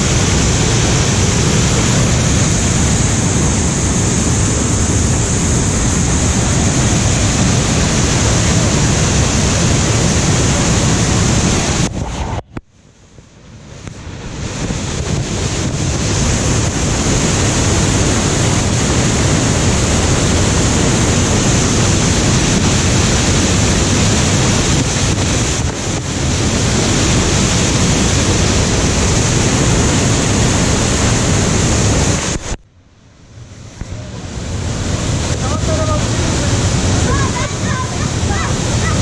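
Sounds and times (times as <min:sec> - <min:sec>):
waterfall rushing: 0:00.0 - 0:12.4, 0:13.8 - 0:32.6, 0:33.5 - 0:39.0.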